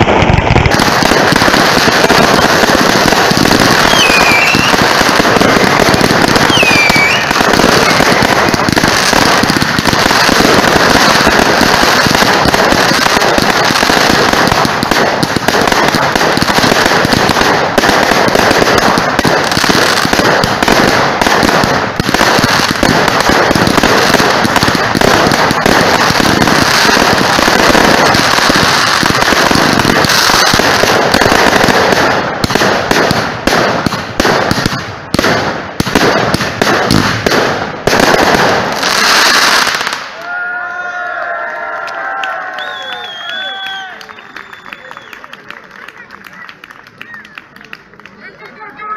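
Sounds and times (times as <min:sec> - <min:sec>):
fireworks bangs and crackling: 0:00.0 - 0:40.3, 0:42.2 - 0:48.9.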